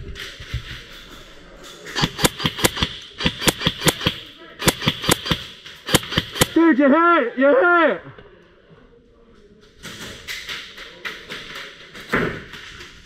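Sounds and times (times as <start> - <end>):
airsoft gun firing: 2.0 - 6.6.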